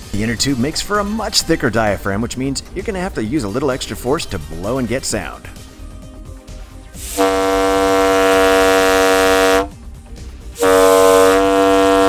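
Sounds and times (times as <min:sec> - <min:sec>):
deep horn blasts: 0:07.0 - 0:09.8, 0:10.6 - 0:12.0.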